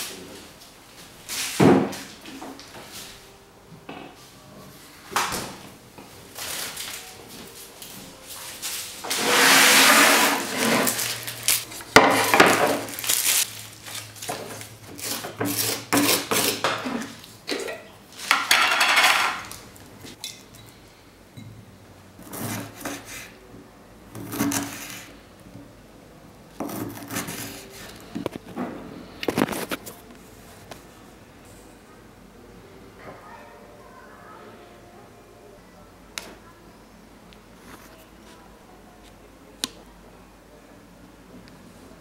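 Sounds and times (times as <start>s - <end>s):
plastic packaging rustling: 6.2s - 9.4s, 10.2s - 15.3s
knife on cutting board: 15.0s - 17.1s, 24.2s - 25.1s, 26.6s - 28.0s
jar and utensils set down: 17.5s - 19.5s.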